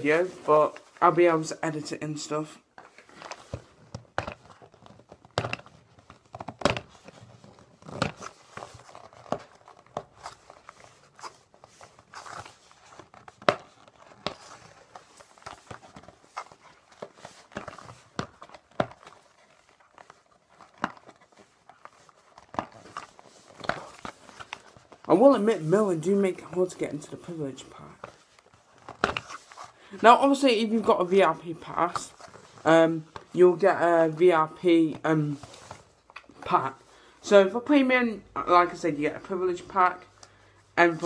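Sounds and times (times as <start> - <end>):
plastic film crinkling: 2.6 - 37.2.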